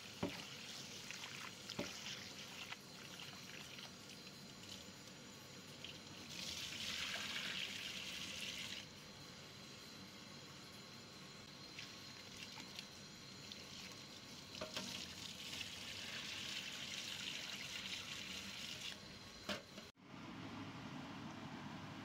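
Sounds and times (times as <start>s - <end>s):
tap water running into pot: 0.0s - 4.8s, 5.8s - 8.8s, 11.8s - 19.0s
water poured into steel sink: 5.8s - 8.8s.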